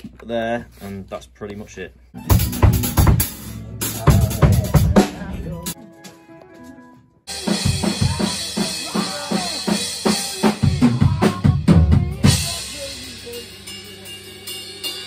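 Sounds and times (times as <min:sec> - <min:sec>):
drum kit playing: 0:02.2 - 0:15.0
cymbal wash: 0:12.3 - 0:15.0.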